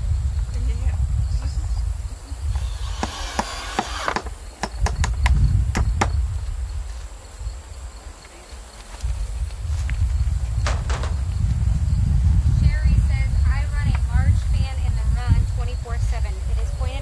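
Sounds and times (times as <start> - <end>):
cordless drill driving screws: 2.6 - 4.3.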